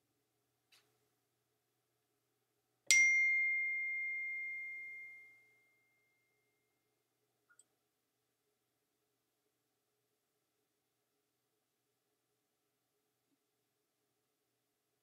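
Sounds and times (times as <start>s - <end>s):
bell-like ding: 2.9s - 6.3s.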